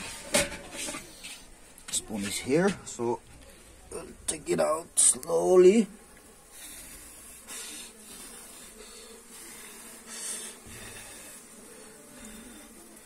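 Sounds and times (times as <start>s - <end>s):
bee colony humming: 1.0s - 13.0s
bees hissing: 4.6s - 13.0s.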